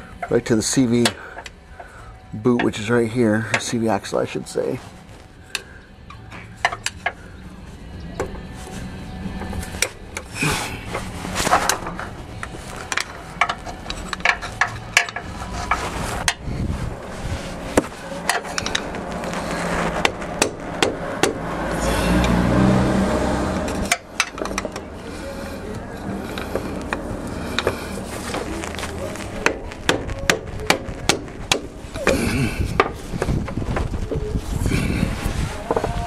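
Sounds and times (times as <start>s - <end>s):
metal scraping: 0.0s - 36.0s.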